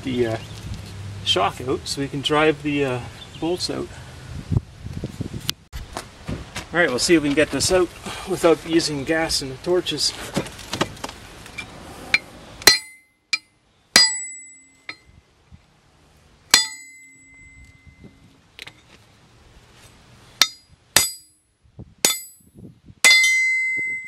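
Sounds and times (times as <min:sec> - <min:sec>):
hammer striking steel: 0:12.1 - 0:15.1, 0:16.5 - 0:17.8, 0:20.4 - 0:24.0.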